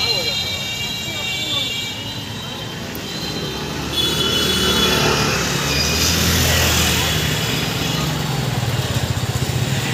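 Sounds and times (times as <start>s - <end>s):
motorcycle engine running: 6.4s - 9.9s.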